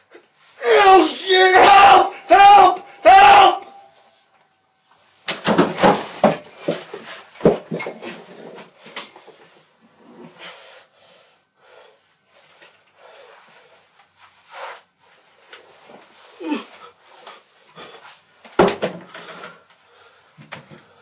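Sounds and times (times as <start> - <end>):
knocks and bumps on hard floor: 5.3 - 8.2, 18.6 - 19.2.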